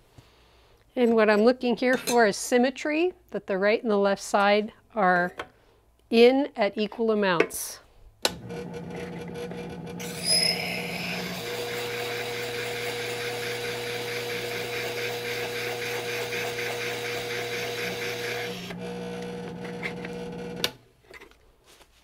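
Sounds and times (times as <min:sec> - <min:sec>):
sharpening machine motor hum: 0:08.3 - 0:20.8
steel grinding hiss: 0:10.0 - 0:13.6.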